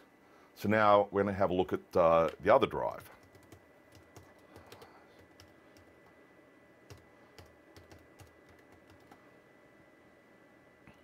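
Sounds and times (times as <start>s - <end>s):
computer keyboard keystrokes: 3.2s - 6.1s, 6.9s - 9.2s.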